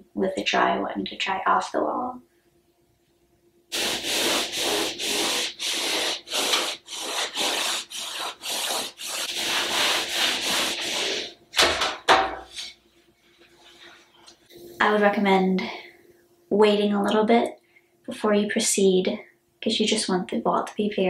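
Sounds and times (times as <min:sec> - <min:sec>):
rag wiping a wall: 0:03.7 - 0:11.4.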